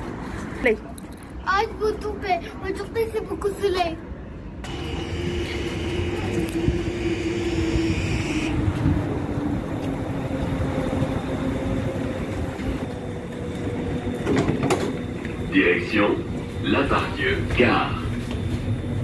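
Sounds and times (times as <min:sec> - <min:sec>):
tram running with electric whine: 0:04.5 - 0:19.0.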